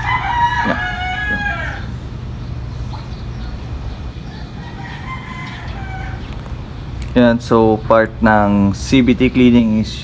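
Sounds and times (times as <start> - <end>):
rooster crowing: 0.0 - 2.0, 4.2 - 6.4
steady low hum: 0.0 - 10.0.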